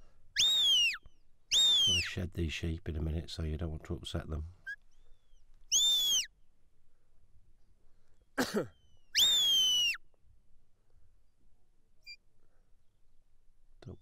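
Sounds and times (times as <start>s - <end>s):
rising and falling whistles: 0.4s - 2.1s, 4.7s - 6.3s, 8.9s - 10.0s.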